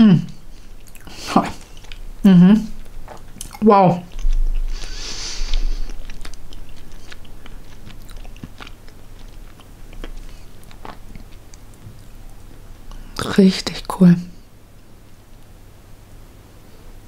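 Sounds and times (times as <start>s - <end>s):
chewing gum wet mouth clicks: 5.8s - 12.2s.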